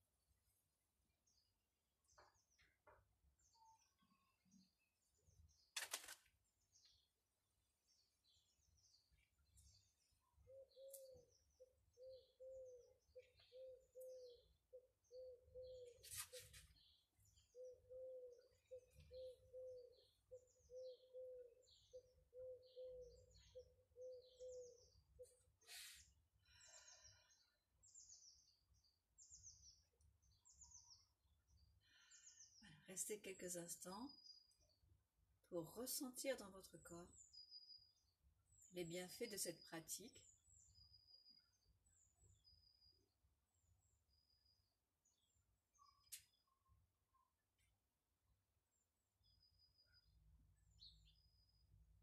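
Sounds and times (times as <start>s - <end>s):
bird cooing: 10.4s - 16.5s, 17.5s - 25.4s.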